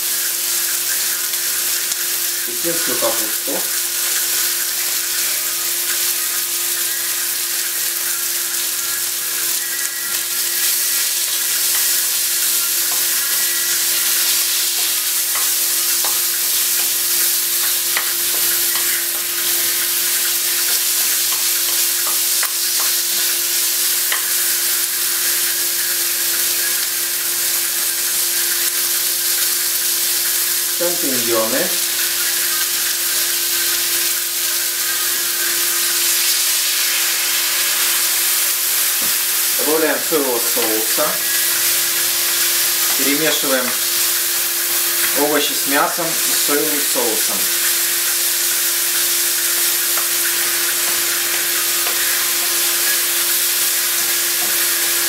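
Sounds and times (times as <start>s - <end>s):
food sizzling in oil: 0.0s - 55.0s.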